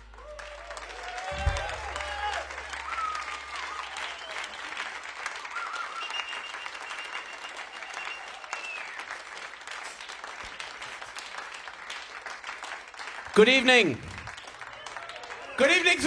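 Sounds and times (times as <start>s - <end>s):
long whistle: 0.0s - 9.2s
audience applauding: 0.0s - 16.0s.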